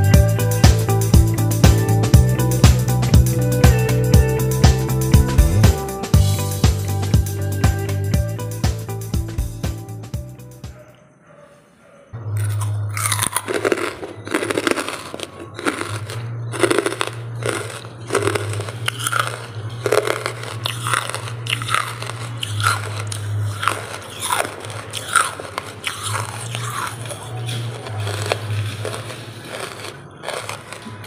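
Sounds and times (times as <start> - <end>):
charcoal crunching when chewed: 12.4 - 31.0.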